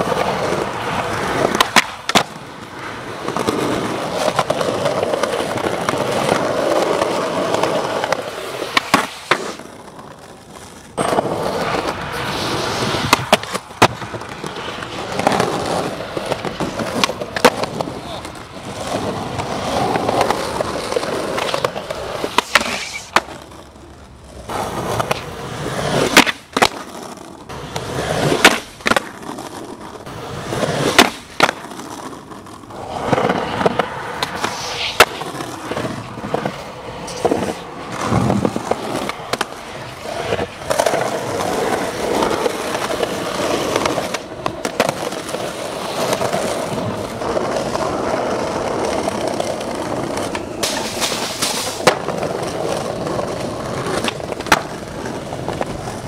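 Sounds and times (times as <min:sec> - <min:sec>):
skateboard clacking on ground: 0:00.0 - 0:56.0
skateboard wheels rumbling on concrete: 0:00.0 - 0:56.0.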